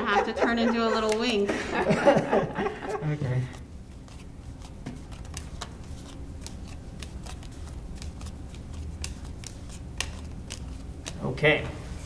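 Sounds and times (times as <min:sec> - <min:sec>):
cards dealt onto cloth table: 0:03.9 - 0:11.2
playing cards snapping onto table: 0:09.0 - 0:11.2.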